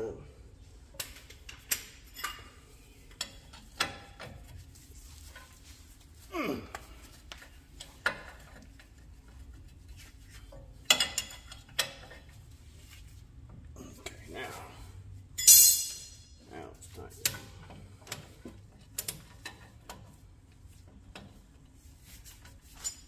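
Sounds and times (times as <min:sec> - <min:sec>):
metal tools clinking: 0:15.4 - 0:16.4, 0:22.7 - 0:23.0.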